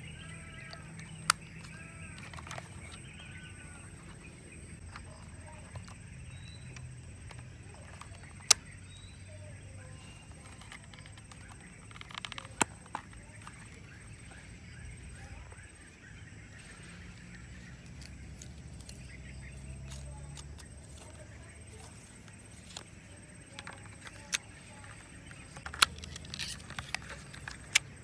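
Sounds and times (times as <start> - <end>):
faint outdoor background: 0.0 - 28.0
camera plastic clicks: 25.4 - 27.9.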